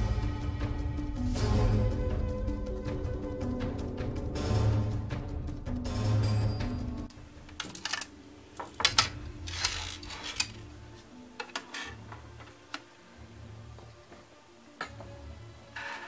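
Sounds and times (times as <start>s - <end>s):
drives sliding scrape: 9.4s - 10.6s.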